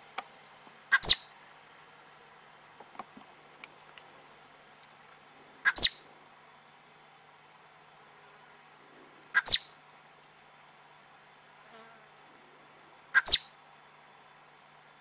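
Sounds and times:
marmot alarm calls: 0:00.9 - 0:01.3, 0:05.6 - 0:06.0, 0:09.4 - 0:09.8, 0:13.2 - 0:13.6.

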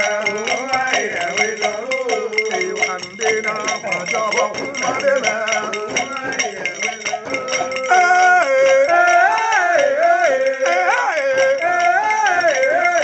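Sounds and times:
men chanting together: 0:00.0 - 0:13.0
metal bell struck: 0:00.0 - 0:13.0.

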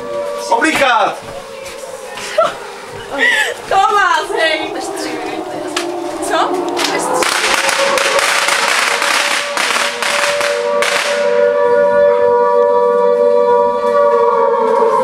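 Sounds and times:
air-raid siren wailing: 0:00.0 - 0:15.0
noisy din with bangs: 0:06.8 - 0:11.5.

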